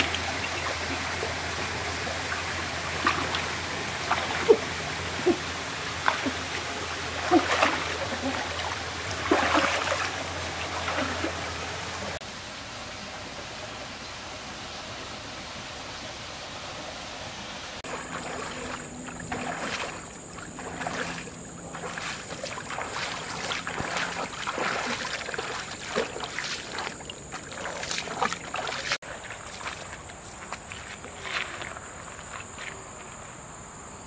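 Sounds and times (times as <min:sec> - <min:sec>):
bare feet splashing in water: 0:00.0 - 0:12.2, 0:17.8 - 0:32.8
stream water running: 0:00.0 - 0:33.2
high insect drone: 0:17.9 - 0:34.0.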